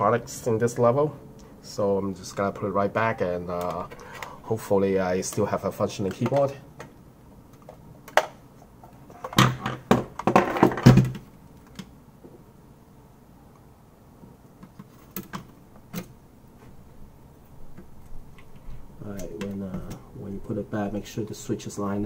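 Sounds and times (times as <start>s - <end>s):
plastic knocks and thumps: 9.2s - 11.3s.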